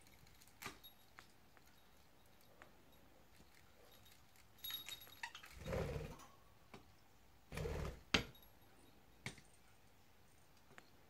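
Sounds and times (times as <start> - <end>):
small bells jingling: 0.0 - 6.0.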